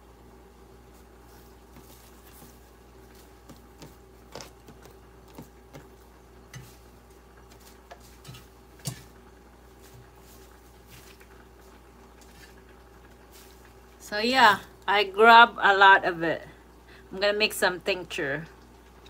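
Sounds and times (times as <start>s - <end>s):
faint steady hum: 0.0s - 19.0s
metal colander and bowl knocks: 7.9s - 9.1s.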